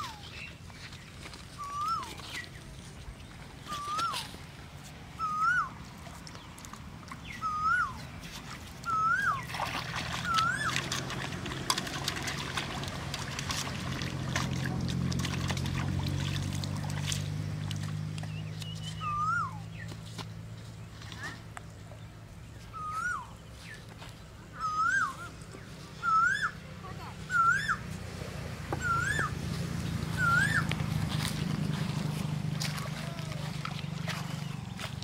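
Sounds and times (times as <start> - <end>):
water splashing and trickling: 0.0 - 19.1, 26.6 - 35.0
bird whistling call: 1.6 - 2.4, 3.7 - 4.3, 5.2 - 5.8, 7.2 - 8.0, 8.9 - 9.5, 10.2 - 10.8, 18.6 - 19.7, 22.6 - 23.8, 24.6 - 25.3, 26.0 - 26.6, 27.3 - 27.8, 28.8 - 29.3, 30.2 - 30.7.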